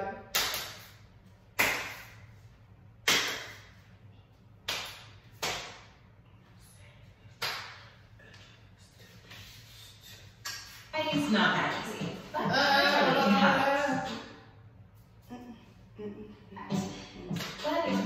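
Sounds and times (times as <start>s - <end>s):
sharp hand claps with echo: 0.3s - 1.0s, 1.6s - 2.2s, 3.0s - 3.7s, 4.6s - 5.9s, 7.4s - 7.9s, 17.3s - 18.0s.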